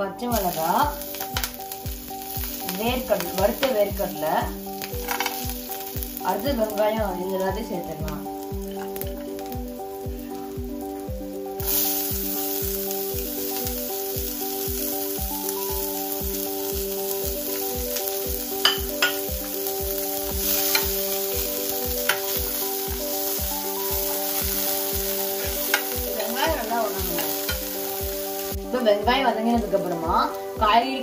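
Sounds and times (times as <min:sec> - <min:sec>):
background music with steady beat: 0:00.0 - 0:31.0
shallots sizzling in a pan: 0:00.0 - 0:31.0
spoon clicking against pan: 0:18.6 - 0:19.2.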